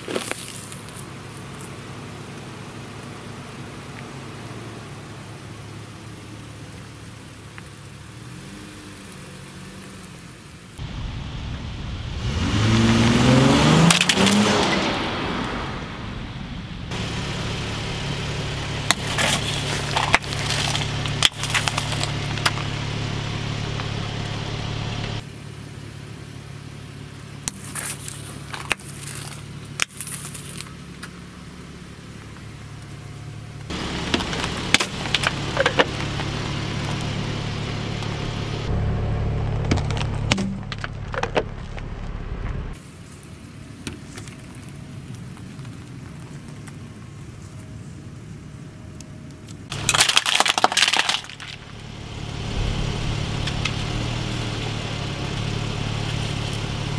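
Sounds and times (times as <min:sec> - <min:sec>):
plastic cracking under tyres: 0:00.0 - 0:01.7, 0:18.9 - 0:22.8, 0:27.5 - 0:31.2, 0:33.7 - 0:37.1, 0:39.6 - 0:41.9, 0:49.3 - 0:51.9
car engine revving: 0:08.0 - 0:25.8, 0:33.2 - 0:42.8, 0:51.0 - 0:56.9.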